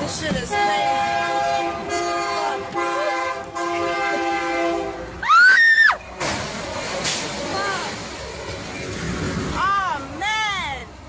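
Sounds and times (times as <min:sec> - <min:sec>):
train air horn blasts: 0:00.5 - 0:05.1.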